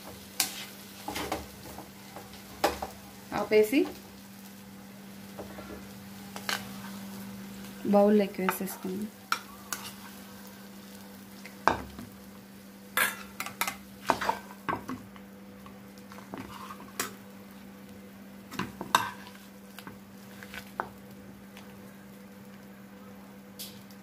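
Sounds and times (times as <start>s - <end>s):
spoon scraping a frying pan: 9.3s - 10.2s, 16.1s - 17.2s, 18.6s - 19.4s.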